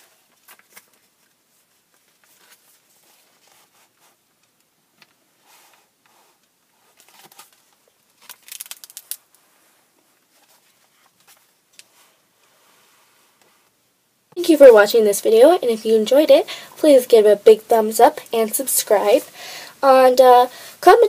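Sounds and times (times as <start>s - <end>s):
paper pages flipping: 0.2s - 4.2s, 6.9s - 9.3s.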